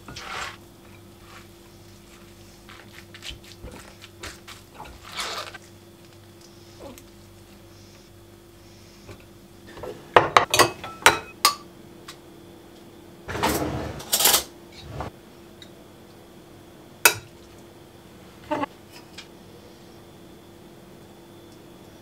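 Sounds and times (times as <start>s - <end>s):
faint steady hum: 0.0s - 22.0s
rustling scrape: 0.1s - 0.6s.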